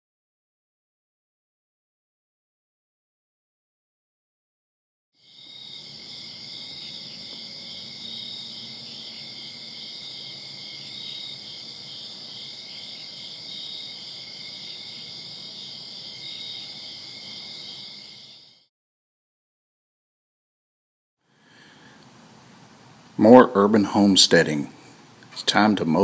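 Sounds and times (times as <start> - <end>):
crickets and insects trilling: 5.2 - 18.7
louder insect call: 5.2 - 18.7.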